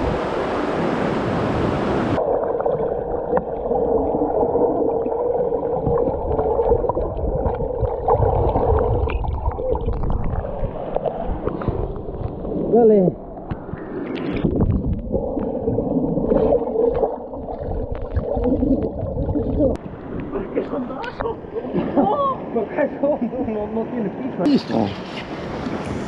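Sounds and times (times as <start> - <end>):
rushing river water: 0.0 - 23.0
muffled gurgling water: 2.0 - 22.0.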